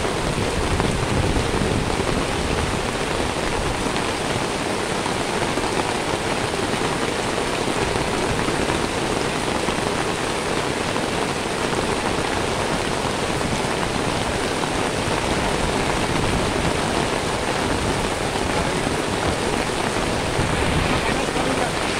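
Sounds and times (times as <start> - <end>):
heavy rain on pavement: 0.0 - 21.9.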